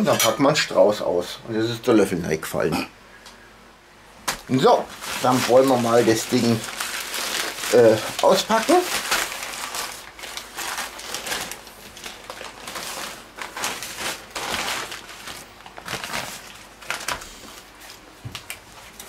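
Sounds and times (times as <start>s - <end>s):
newspaper crinkling and rustling: 4.3s - 19.0s.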